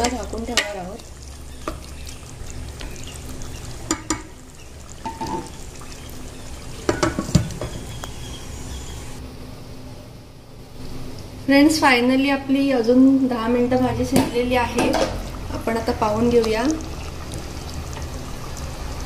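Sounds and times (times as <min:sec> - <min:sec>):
utensil knocking on metal: 0:06.9 - 0:07.8.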